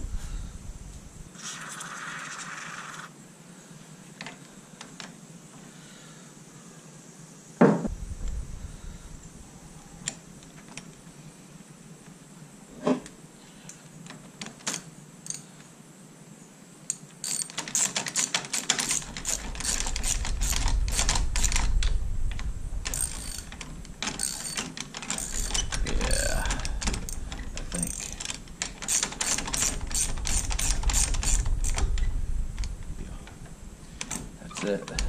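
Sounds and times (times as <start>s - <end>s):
knock: 7.6s - 7.9s
hand ratchet clicking: 17.2s - 21.7s, 22.8s - 31.9s.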